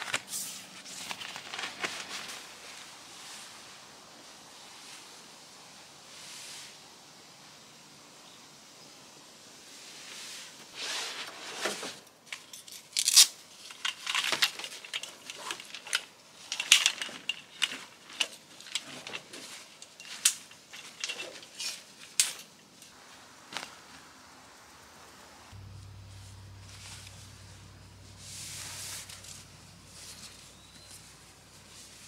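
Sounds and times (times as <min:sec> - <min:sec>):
gear rustling and crinkling: 0:00.0 - 0:04.4, 0:10.8 - 0:23.8, 0:25.6 - 0:32.0.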